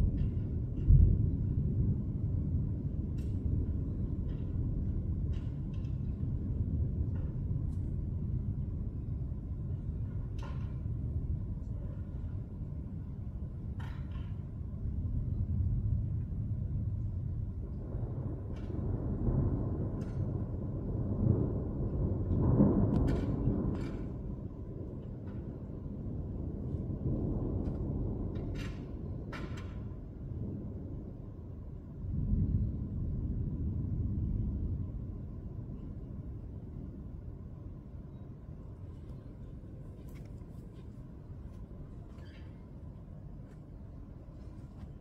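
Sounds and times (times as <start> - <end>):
thunder rumbling: 0.0 - 13.8, 14.5 - 42.0.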